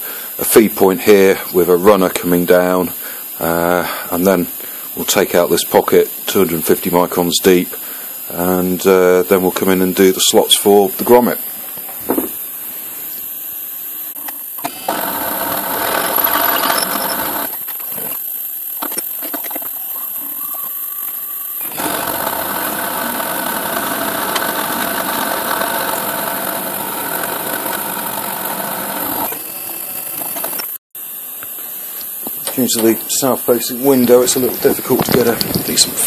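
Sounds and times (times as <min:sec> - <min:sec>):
milling spindle whine: 0:08.3 - 0:36.0
metal cutting noise: 0:14.6 - 0:17.6, 0:21.6 - 0:30.8.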